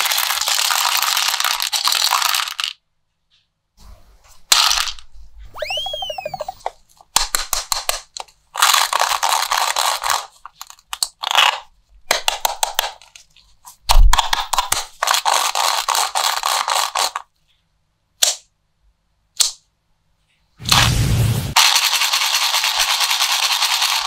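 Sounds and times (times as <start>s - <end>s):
plastic toy crackling: 7.3s - 13.2s.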